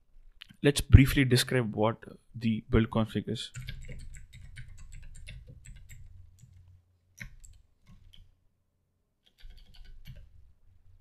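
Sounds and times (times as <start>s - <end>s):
keyboard typing clicks: 3.6s - 6.6s, 9.2s - 10.3s.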